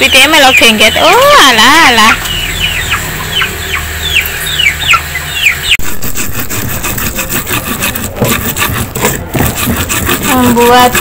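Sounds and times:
chick peeping: 0.0 - 6.0
stone pestle grinding in mortar: 5.8 - 11.0.

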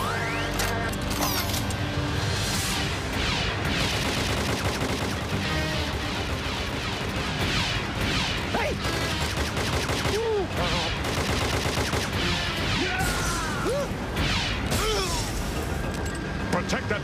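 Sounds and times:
laser gun zapping blasts: 2.7 - 15.5.

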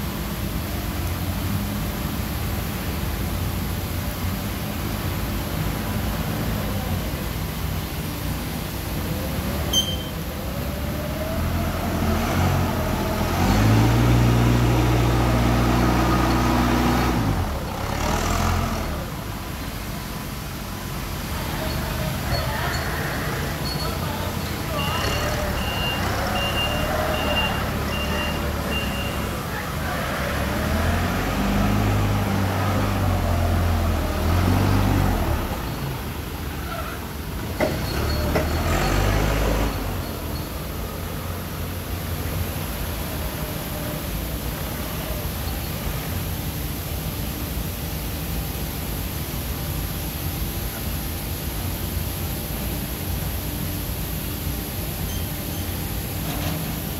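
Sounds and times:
forklift engine revving: 9.1 - 22.3, 23.0 - 44.7.

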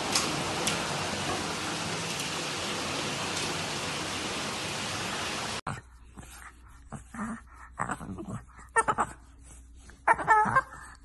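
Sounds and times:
steady rain: 0.0 - 5.6
puppy whining: 9.9 - 11.0.

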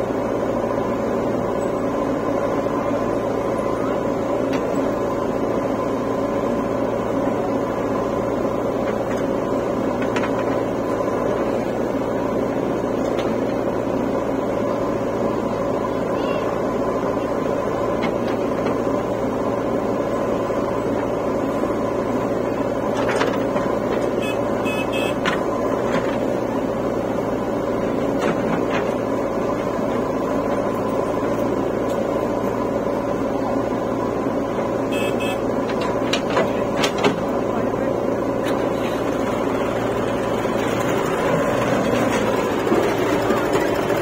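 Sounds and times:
diesel engines running: 0.0 - 44.0
knocks and clanks: 35.6 - 37.3.

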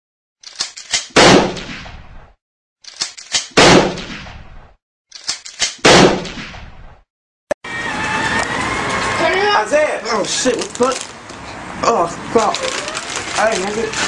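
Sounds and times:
gun clicks: 0.4 - 1.2, 2.8 - 3.6, 5.1 - 5.8
gunshot ringing: 1.1 - 2.0, 3.5 - 4.4, 5.8 - 6.7.

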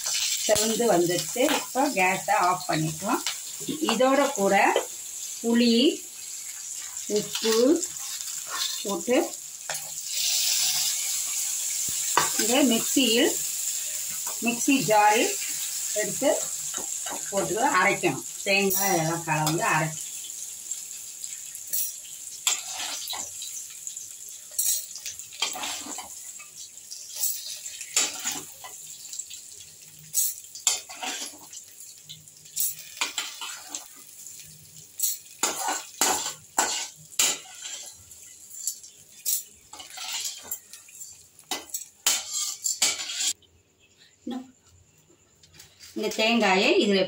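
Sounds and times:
ladle scraping a steel pan: 39.8 - 40.6, 42.1 - 43.4.

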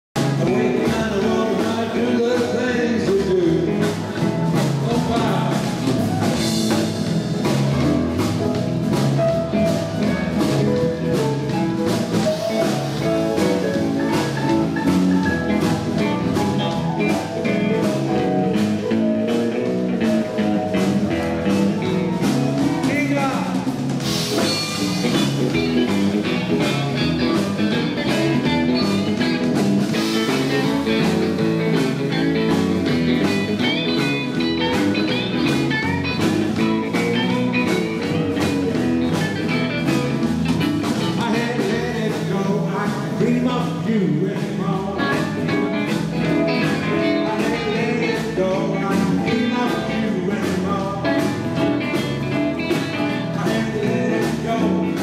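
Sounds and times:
bass guitar: 0.0 - 55.0
drums: 0.0 - 55.0
electric guitars: 0.2 - 55.0
keyboard: 0.2 - 55.0.

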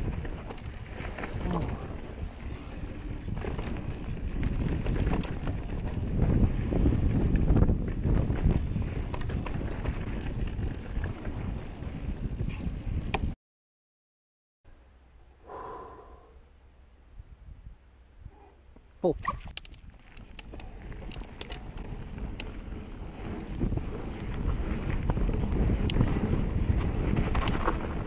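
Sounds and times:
bike tyres crunching over stones: 0.0 - 13.3, 19.2 - 28.0
bike rattling over bumps: 0.0 - 13.4, 19.2 - 28.0
wind on microphone: 0.0 - 13.4, 19.2 - 28.0.

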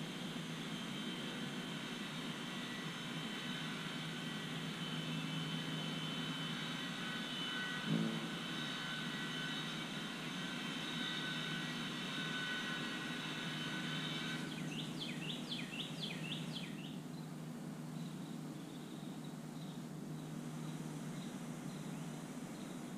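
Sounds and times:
engine drone with high whine: 0.0 - 22.9.

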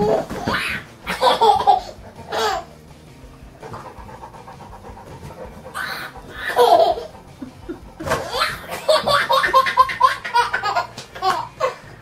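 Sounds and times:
toddler laughing: 0.0 - 2.8, 5.6 - 11.9.

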